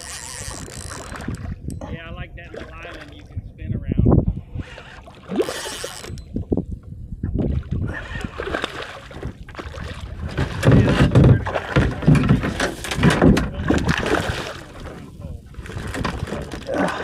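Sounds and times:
water sloshing around kayak: 4.4s - 6.6s, 7.2s - 17.0s.

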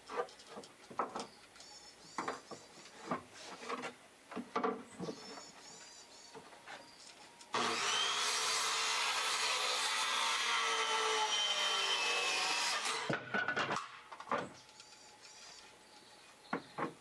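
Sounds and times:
scraping and knocking on wood: 0.0s - 1.3s, 2.2s - 6.9s
power tool running: 7.5s - 13.1s.

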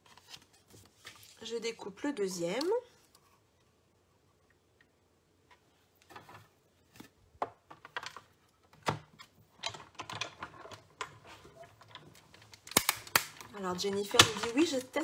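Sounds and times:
plastic plates clicking and tapping: 7.4s - 15.0s.

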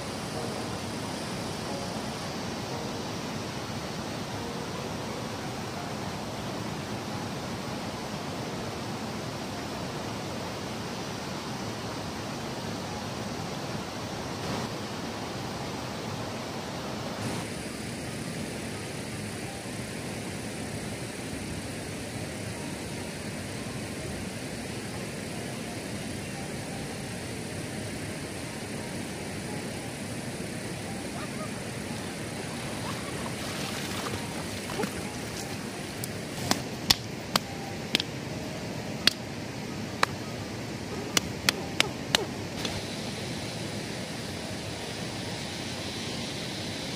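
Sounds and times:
floodwater rushing: 0.0s - 20.2s, 30.1s - 46.9s
sharp ticks and taps: 36.0s - 38.1s, 41.1s - 42.8s.

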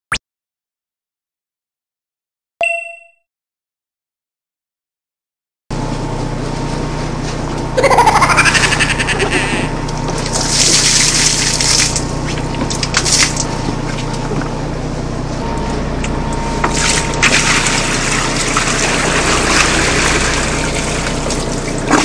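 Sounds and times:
low boat engine hum: 5.8s - 22.0s
water pouring from a bucket: 10.2s - 13.5s, 16.7s - 22.0s.

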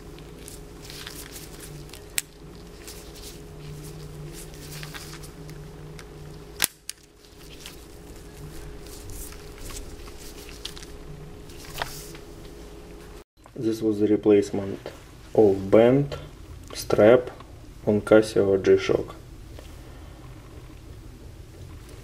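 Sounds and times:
handling noise: 0.0s - 13.2s
steady low hum: 0.0s - 22.0s.

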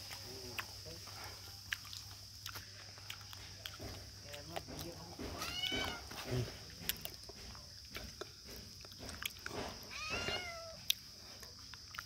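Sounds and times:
kitten meowing: 5.4s - 6.1s, 9.9s - 10.8s.

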